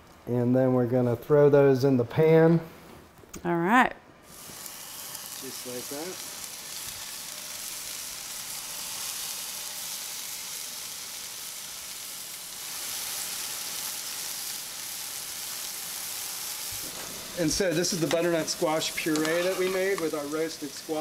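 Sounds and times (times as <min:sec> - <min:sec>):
scallops sizzling in oil: 0:04.2 - 0:21.0.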